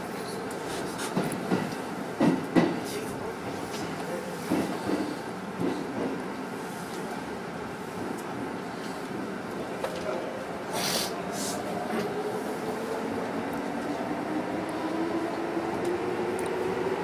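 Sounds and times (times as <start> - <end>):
train rolling rumble: 0.0 - 17.0
short hisses: 10.7 - 11.6.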